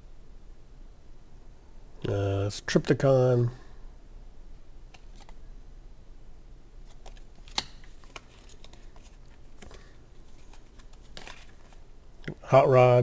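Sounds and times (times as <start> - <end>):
cards clicking and snapping: 4.9 - 5.4, 6.8 - 12.4.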